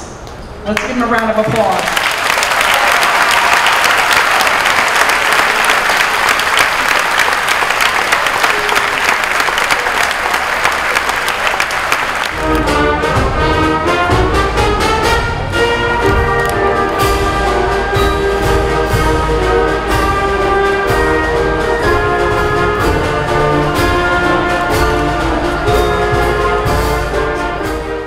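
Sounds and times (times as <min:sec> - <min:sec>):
crowd applauding: 0:00.8 - 0:12.8, 0:15.9 - 0:22.2
orchestral music with brass: 0:11.5 - 0:28.0.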